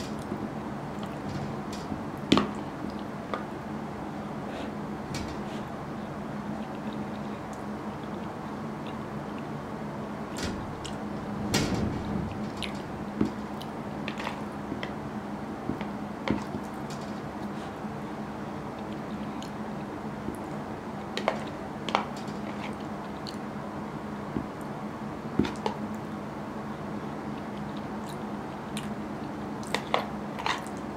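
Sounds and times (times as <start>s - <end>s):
steady low hum: 0.0s - 30.9s
soft chewing: 6.5s - 9.5s, 18.7s - 19.6s, 22.4s - 23.4s, 27.3s - 29.0s.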